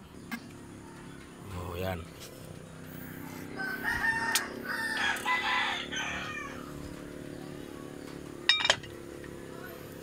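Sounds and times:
rooster crowing: 3.5s - 6.8s.

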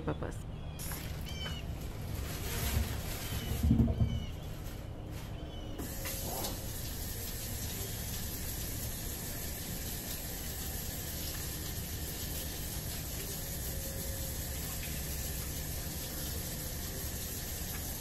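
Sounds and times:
potatoes washed by hand: 0.8s - 4.7s, 5.8s - 18.0s
faucet running into sink: 5.8s - 18.0s.

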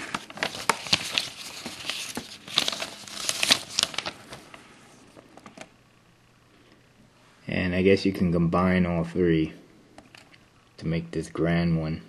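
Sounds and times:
paper pages rustling: 0.0s - 5.7s.

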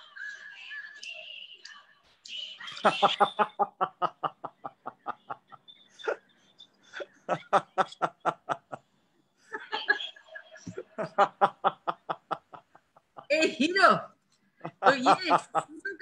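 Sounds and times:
people laughing: 2.8s - 6.2s, 6.9s - 8.8s, 9.5s - 13.5s, 14.6s - 16.0s.

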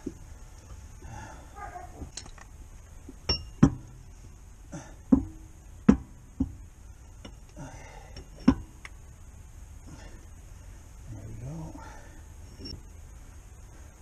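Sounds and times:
metal tools knocking on wheel hub: 3.2s - 3.9s.

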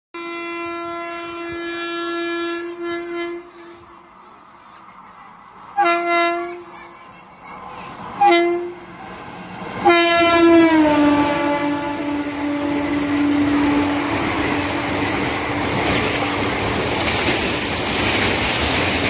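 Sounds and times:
locomotive horn blasts: 0.2s - 4.0s, 5.8s - 6.7s, 8.2s - 8.9s, 9.8s - 15.0s
faint train rumble: 0.2s - 19.0s.

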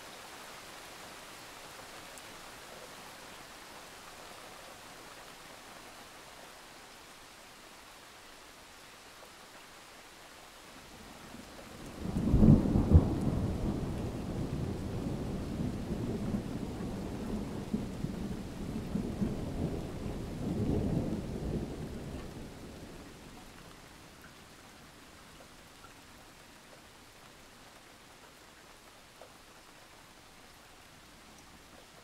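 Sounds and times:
steady rain: 0.0s - 32.0s.

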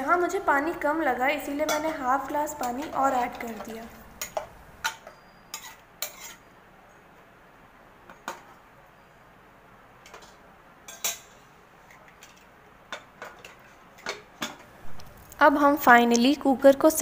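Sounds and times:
metal ladle clinking on pot: 1.6s - 6.4s.

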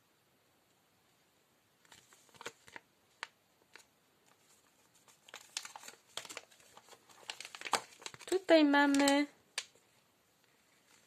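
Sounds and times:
plastic packaging crinkling: 1.8s - 9.9s.

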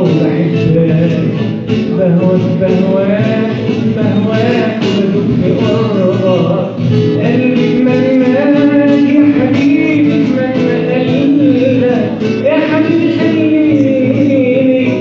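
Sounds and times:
man singing: 0.0s - 15.0s
strummed guitar: 0.0s - 15.0s.

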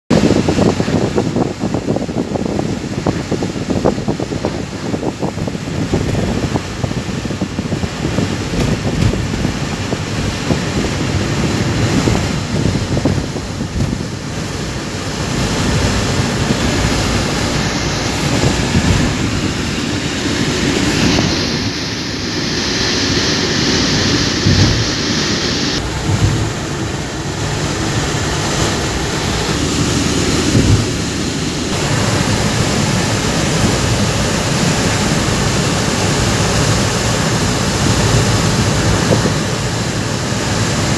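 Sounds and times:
rushing air: 0.1s - 40.9s
tyres and engine rumbling: 0.1s - 40.9s.

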